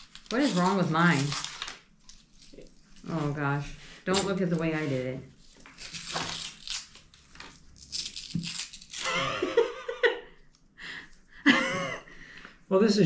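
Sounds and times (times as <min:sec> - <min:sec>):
paper wrapper tearing and rustling: 0:00.0 - 0:03.4, 0:04.2 - 0:09.2
laughter: 0:09.0 - 0:10.4, 0:11.4 - 0:12.1.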